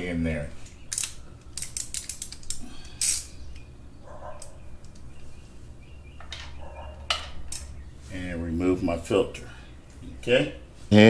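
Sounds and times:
ratchet wrench clicking: 0:00.9 - 0:03.3.

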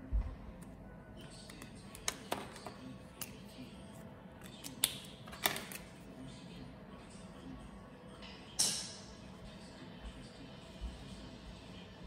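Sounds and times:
plastic marker caps clicking: 0:01.4 - 0:03.4, 0:04.4 - 0:05.9.

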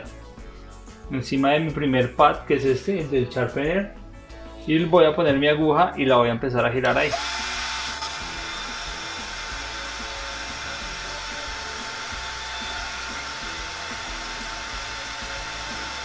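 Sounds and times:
cordless drill whining: 0:06.9 - 0:16.0.

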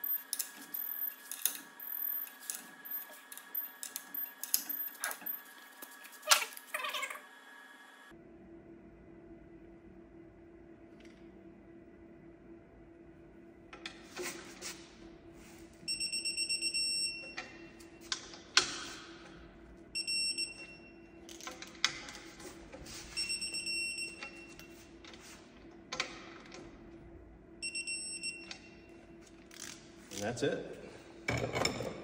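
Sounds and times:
torque wrench beeping: 0:00.0 - 0:05.6
steady low hum: 0:07.3 - 0:32.0.

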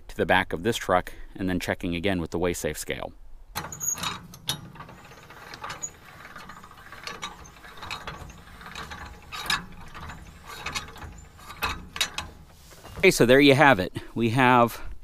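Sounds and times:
trailer jack gears clicking: 0:03.6 - 0:13.8.

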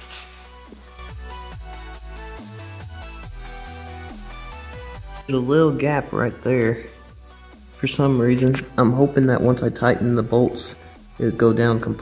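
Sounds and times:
electronic music with kick drum: 0:00.4 - 0:11.3.

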